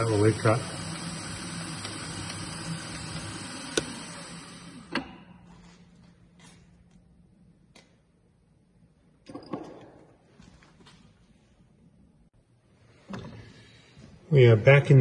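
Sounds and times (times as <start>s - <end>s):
milling machine hum and hiss: 0.0s - 4.9s.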